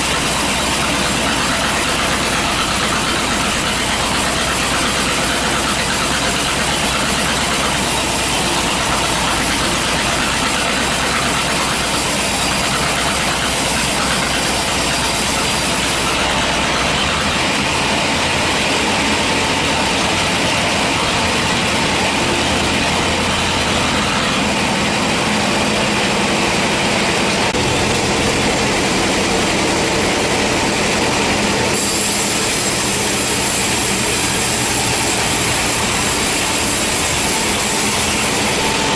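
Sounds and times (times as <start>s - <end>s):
band saw cutting log: 0.0s - 38.9s.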